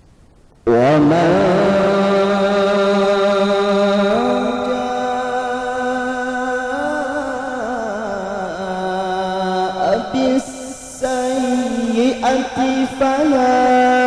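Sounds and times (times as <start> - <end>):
man reciting melodically: 0.6 - 14.0.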